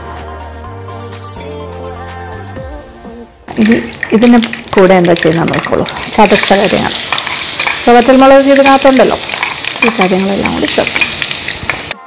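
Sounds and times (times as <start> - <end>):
paste sizzling in hot oil: 3.6 - 12.0.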